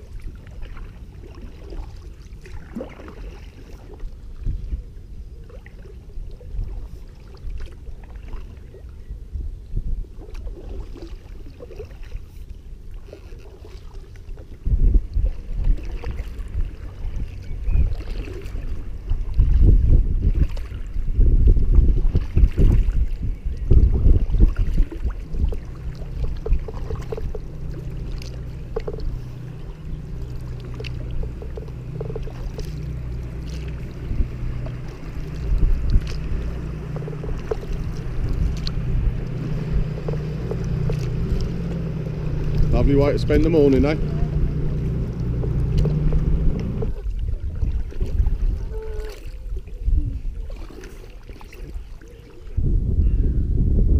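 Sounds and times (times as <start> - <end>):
boat engine humming: 0.0 - 9.3, 10.0 - 52.6
water buffeting canoe: 0.0 - 53.9.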